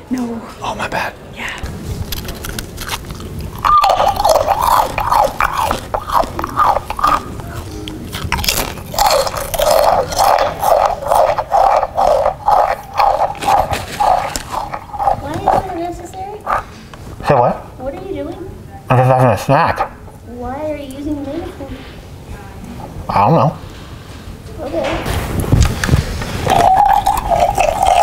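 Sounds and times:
chewing through a megaphone: 2.0s - 16.7s, 26.4s - 28.0s.

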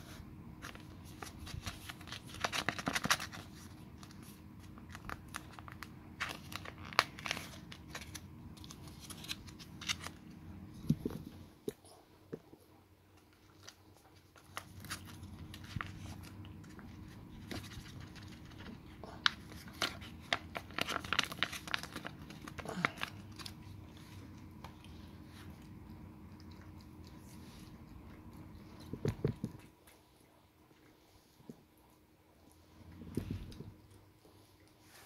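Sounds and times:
food pouch crinkling and tearing: 0.6s - 10.2s, 13.3s - 23.6s.

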